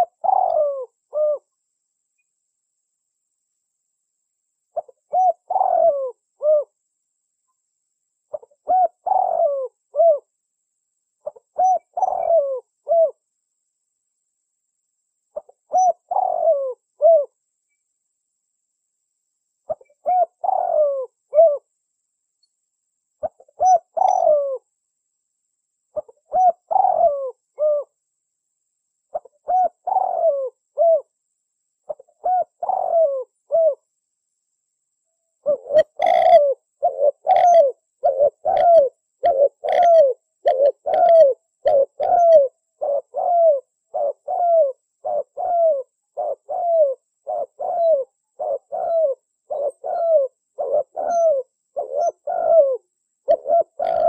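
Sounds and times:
dove cooing: 0.0 - 1.5, 4.7 - 6.8, 8.3 - 10.3, 11.2 - 13.2, 15.4 - 17.4, 19.7 - 21.7, 23.2 - 24.7, 25.9 - 28.0, 29.1 - 31.1, 31.9 - 33.9, 35.4 - 54.0.

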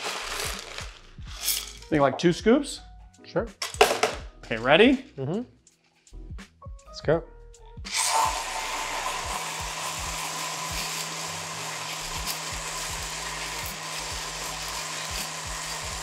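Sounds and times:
electric mixer motor whirring: 0.0 - 0.7, 7.9 - 16.0.

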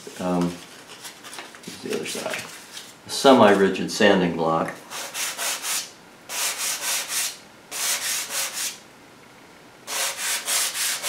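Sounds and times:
sandpaper scratching strokes: 4.9 - 8.8, 9.9 - 11.0.

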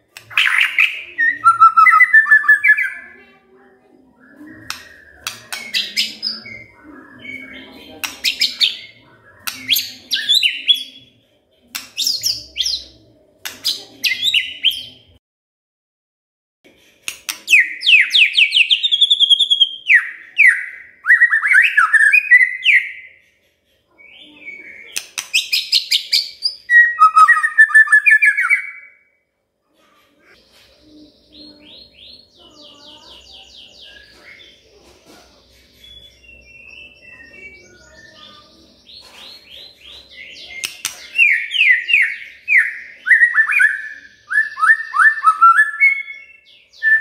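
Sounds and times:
fast repeated bird notes: 0.0 - 3.2, 4.3 - 11.1, 24.5 - 29.0, 35.6 - 47.0
bird singing whistled phrases: 0.3 - 3.1, 17.5 - 23.2, 24.0 - 29.1, 35.8 - 38.6, 40.2 - 47.0.

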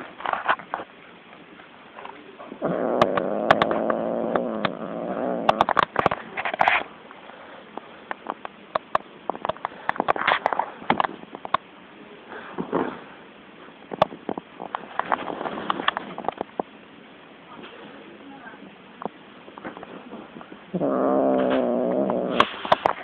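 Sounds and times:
cat growling: 2.4 - 6.0, 20.6 - 23.0
sharp clicks and scratches: 5.4 - 6.9.

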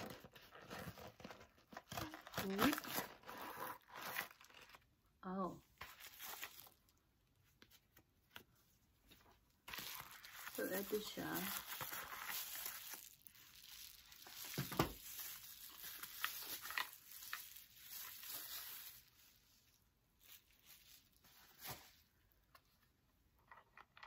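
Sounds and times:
bubble-wrap pouch crinkling: 0.0 - 4.9, 5.8 - 7.0, 9.6 - 22.1.

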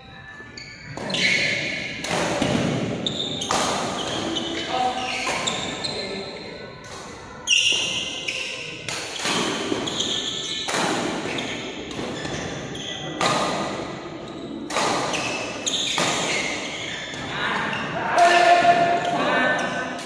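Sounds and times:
racket hitting shuttlecock: 0.9 - 5.8, 8.8 - 12.6, 13.2 - 13.8, 14.7 - 16.7.

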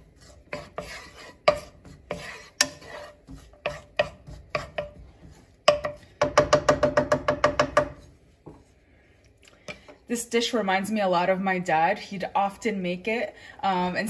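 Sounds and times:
wooden spatula scraping pan: 0.0 - 6.2.

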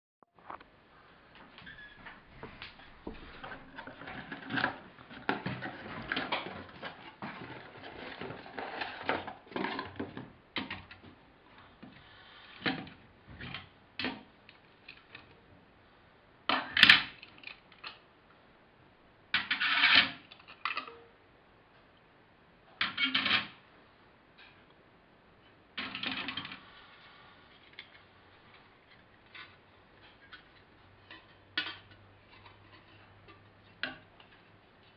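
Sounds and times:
plastic parts rustling and clattering: 2.4 - 15.4, 19.4 - 21.0, 25.8 - 34.9.

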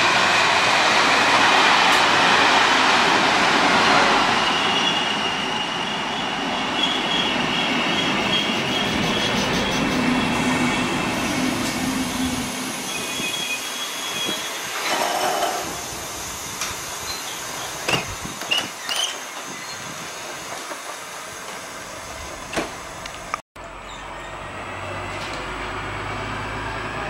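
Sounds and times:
train wheels rumbling on rails: 0.0 - 27.0
high brake squeals: 11.9 - 15.0, 17.0 - 19.9.

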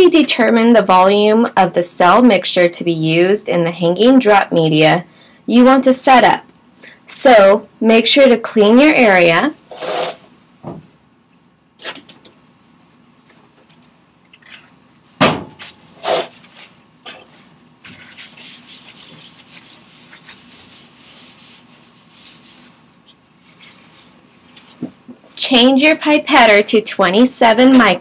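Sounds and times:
cabinet fan hum: 0.0 - 28.0
paper towels rubbing on steel: 17.9 - 22.8.

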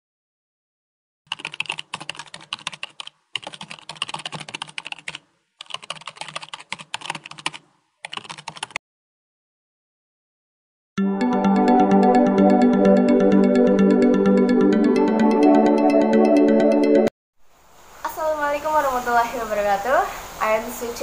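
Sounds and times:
computer keyboard typing: 1.3 - 8.8.

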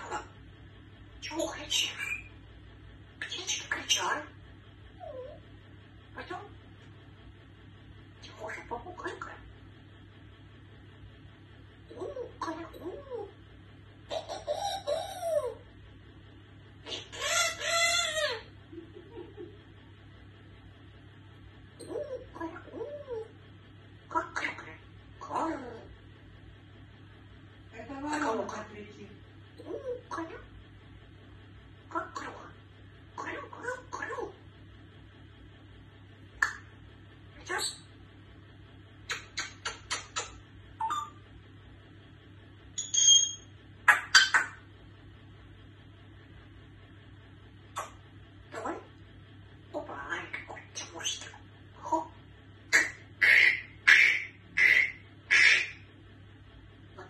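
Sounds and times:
parrot calling: 0.0 - 0.4, 1.2 - 2.4, 3.2 - 4.4, 5.0 - 5.4, 6.1 - 6.6, 8.2 - 9.5, 11.8 - 13.4, 14.1 - 15.7, 16.8 - 19.5, 21.7 - 23.4, 24.1 - 25.9, 29.6 - 30.5, 31.9 - 32.6, 33.2 - 34.4, 36.4 - 38.0, 39.0 - 41.2, 42.8 - 44.7, 47.7 - 49.0, 49.7 - 55.9
faint parrot chirps: 42.8 - 44.7.

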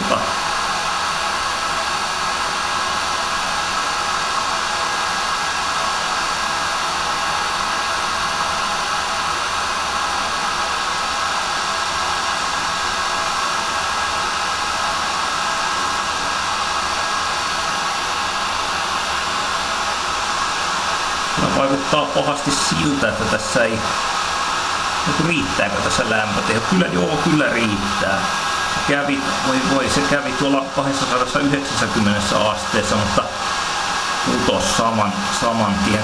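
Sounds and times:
hot-air gun blowing: 0.0 - 36.0.

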